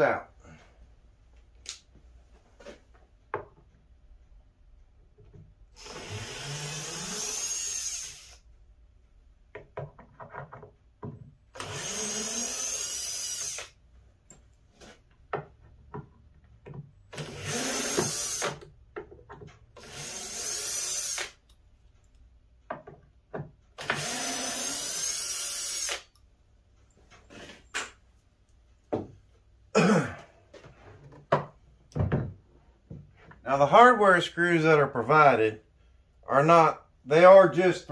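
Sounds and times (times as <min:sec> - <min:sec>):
cordless drill spinning: 0:05.8 - 0:08.5, 0:11.5 - 0:13.8, 0:17.1 - 0:18.7, 0:19.8 - 0:21.4, 0:23.8 - 0:26.2.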